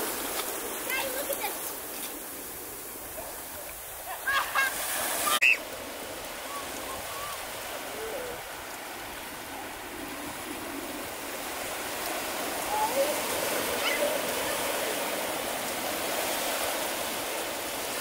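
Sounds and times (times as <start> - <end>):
rushing water: 0.0 - 18.0.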